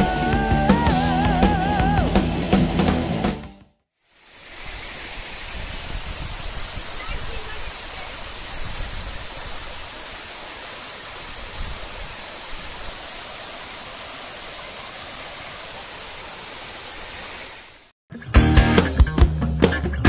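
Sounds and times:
waterfall rushing: 4.1s - 17.9s
guitar music: 18.1s - 20.0s.

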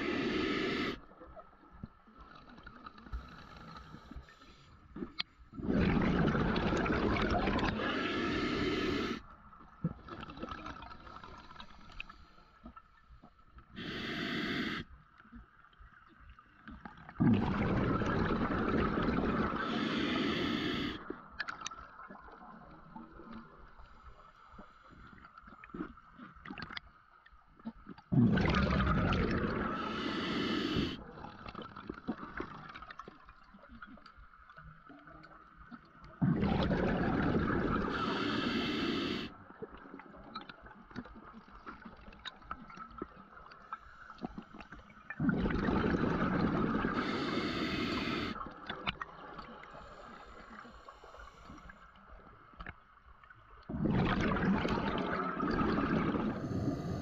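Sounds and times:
underwater breath bubbling: 0.0s - 1.1s, 3.0s - 12.6s, 13.7s - 14.9s, 17.2s - 21.3s, 28.1s - 31.4s, 36.2s - 39.4s, 43.7s - 52.1s, 53.7s - 57.0s.

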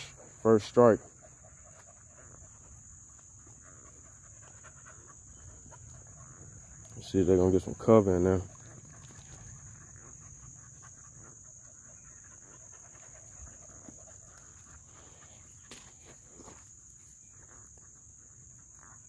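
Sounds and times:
high-pitched insect chorus: 0.0s - 19.0s
footsteps on sandy dirt road: 12.8s - 17.9s.

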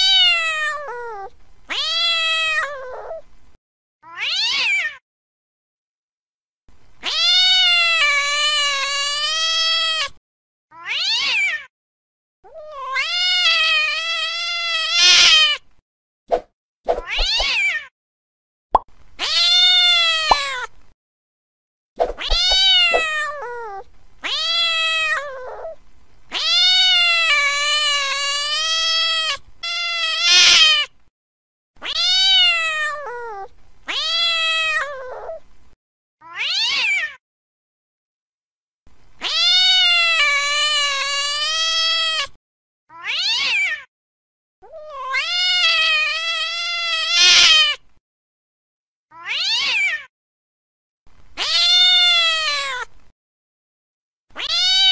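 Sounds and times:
cats yowling: 0.0s - 3.2s, 4.0s - 5.0s, 7.0s - 11.7s, 12.5s - 15.6s, 22.2s - 30.9s, 31.8s - 35.4s, 36.2s - 37.2s, 39.2s - 42.3s, 42.9s - 43.9s, 44.6s - 47.8s, 49.1s - 50.1s, 51.4s - 52.9s, 54.4s - 54.9s
falling cat meows: 0.0s - 3.2s, 4.0s - 5.0s, 7.0s - 11.7s, 12.5s - 15.6s, 17.0s - 17.9s, 19.2s - 20.7s, 22.1s - 30.9s, 31.8s - 35.4s, 36.2s - 37.2s, 39.2s - 43.9s, 44.6s - 47.8s, 49.1s - 50.1s, 51.4s - 52.9s, 54.4s - 54.9s.

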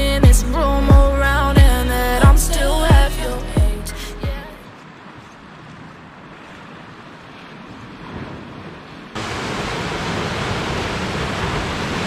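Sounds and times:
wind: 0.0s - 12.0s
waves on a pebble shore: 4.9s - 12.0s.

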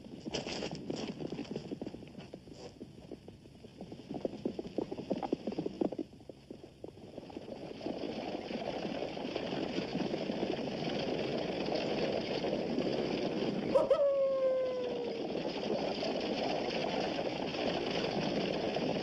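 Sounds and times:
steady rumbling noise: 0.0s - 19.0s
long howl-like call: 13.7s - 15.5s.

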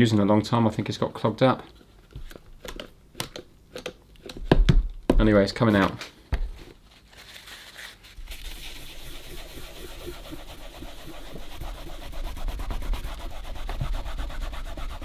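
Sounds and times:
rubbing strokes on leather covering: 8.3s - 15.0s.

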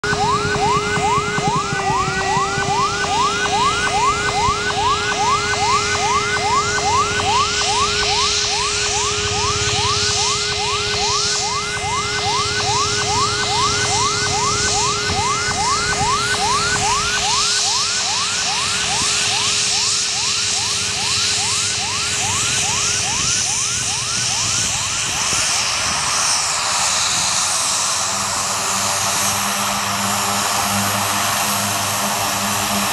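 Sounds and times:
turboprop engines whining: 0.0s - 32.9s.

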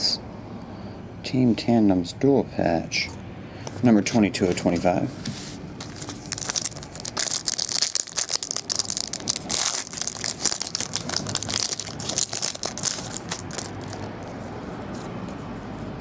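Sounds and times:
plastic bags crinkling: 5.8s - 14.2s.

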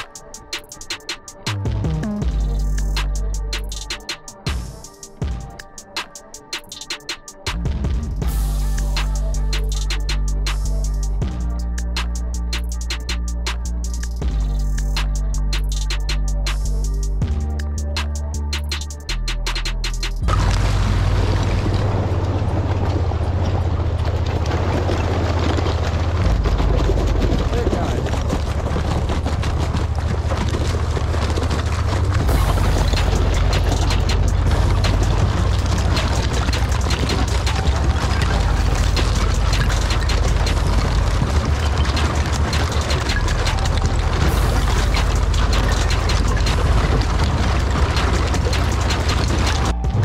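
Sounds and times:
vehicle engine running: 1.4s - 3.9s, 7.6s - 18.4s, 19.8s - 50.0s
ice crackling and breaking: 20.2s - 50.0s
tyres splashing through water: 20.2s - 50.0s.

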